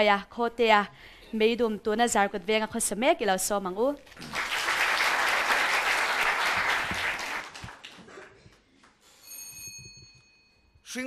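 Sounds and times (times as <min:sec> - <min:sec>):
audience applauding: 0:04.1 - 0:08.3.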